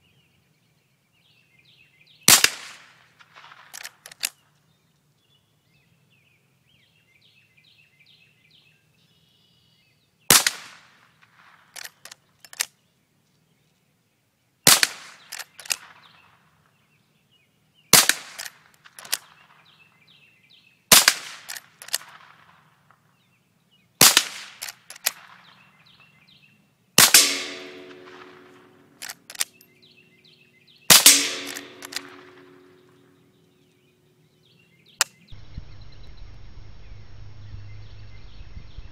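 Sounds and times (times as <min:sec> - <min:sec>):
rifle shots: 0:02.3 - 0:04.3, 0:10.3 - 0:12.7, 0:14.7 - 0:16.2, 0:17.9 - 0:19.4, 0:20.9 - 0:22.7, 0:24.0 - 0:25.6, 0:27.0 - 0:29.6, 0:30.9 - 0:33.1
smaller sharp cracks: 0:02.3 - 0:04.4, 0:10.3 - 0:12.7, 0:14.7 - 0:16.5, 0:17.9 - 0:19.7, 0:20.9 - 0:23.0, 0:24.0 - 0:25.7, 0:27.0 - 0:29.7, 0:30.9 - 0:33.2.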